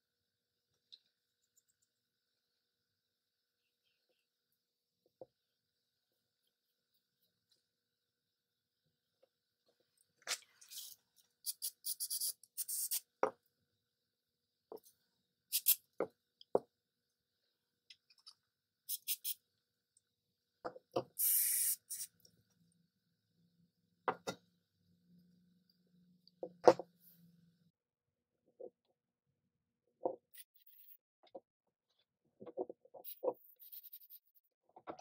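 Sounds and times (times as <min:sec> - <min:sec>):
short hissing bursts: 0:15.5 - 0:15.8, 0:18.9 - 0:19.4, 0:21.2 - 0:22.1.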